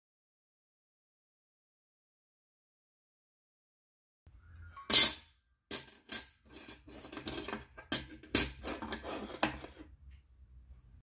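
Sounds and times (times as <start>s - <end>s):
metal plates clinking and clattering: 4.8s - 9.6s.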